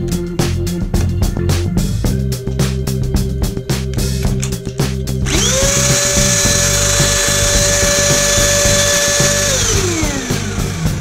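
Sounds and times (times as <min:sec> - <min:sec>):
funk music with bass guitar: 0:00.0 - 0:11.0
handheld vacuum cleaner motor: 0:05.3 - 0:11.0.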